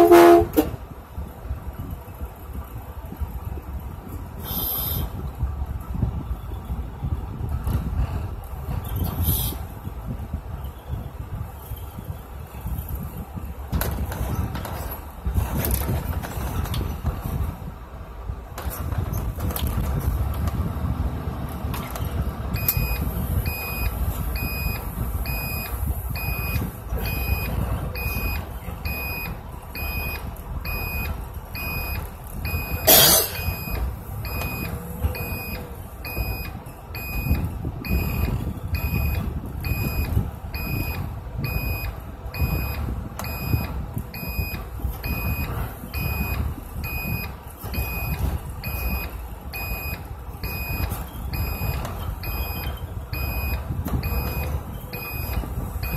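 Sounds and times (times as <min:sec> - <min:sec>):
bus engine running: 0:00.0 - 0:55.9
reversing alarm beeping: 0:22.5 - 0:55.9.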